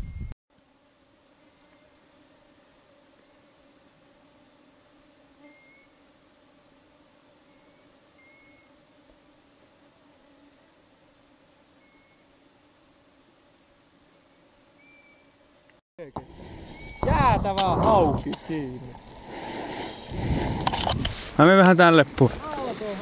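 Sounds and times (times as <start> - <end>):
faint insect hum: 0.0 - 23.0
short high bird chirps: 16.6 - 17.1.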